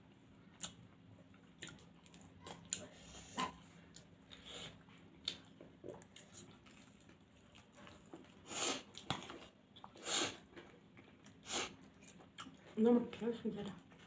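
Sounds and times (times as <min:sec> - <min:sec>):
wet chewing: 0:00.5 - 0:02.9.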